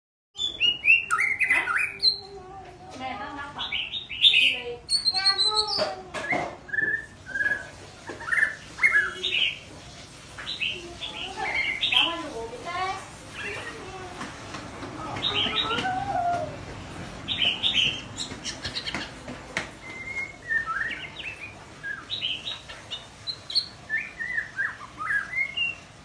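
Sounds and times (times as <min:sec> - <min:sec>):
songbird whistling and chattering: 0:00.4 - 0:02.3, 0:03.6 - 0:09.6, 0:19.8 - 0:25.9.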